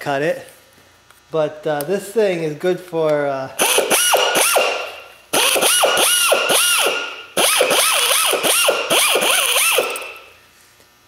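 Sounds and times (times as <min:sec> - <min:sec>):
air nibbler cutting metal: 0:03.6 - 0:10.4.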